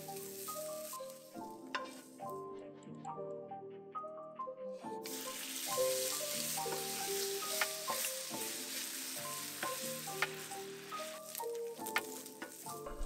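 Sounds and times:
chicken sizzling in oil: 0.0s - 2.1s, 5.0s - 13.0s
soft melodic music: 0.0s - 13.0s
spatula clicking in pan: 9.5s - 11.1s.

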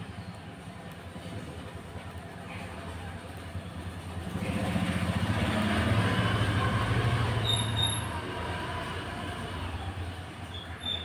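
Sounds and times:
passing vehicle rumble: 0.0s - 11.0s
high squeals: 7.4s - 8.2s, 10.4s - 11.0s.

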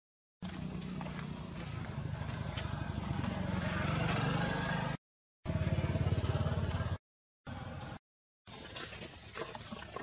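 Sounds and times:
motor engine running: 0.4s - 8.0s.

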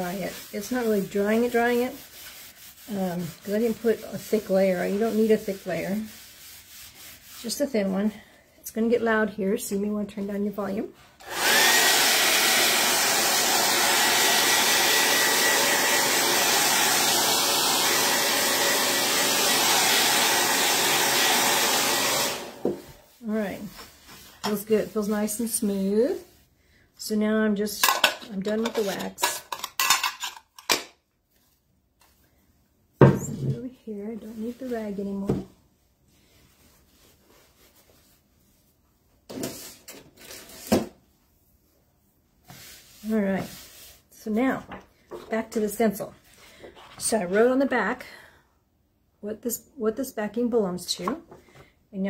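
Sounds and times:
hair dryer running: 11.2s - 23.0s.

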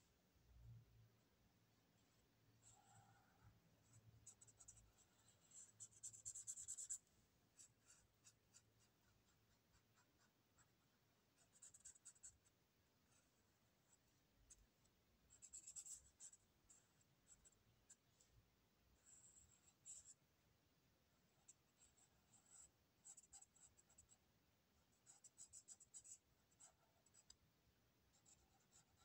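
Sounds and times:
marker scratching on paper: 2.6s - 7.0s, 7.6s - 13.3s, 15.3s - 18.0s, 28.1s - 29.0s.

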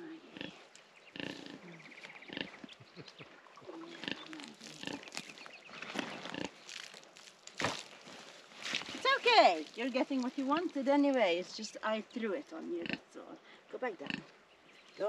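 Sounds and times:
pig grunting: 1.2s - 2.7s.

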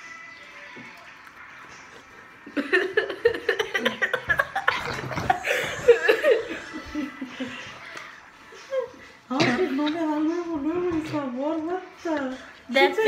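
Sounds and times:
children laughing: 1.8s - 9.3s.

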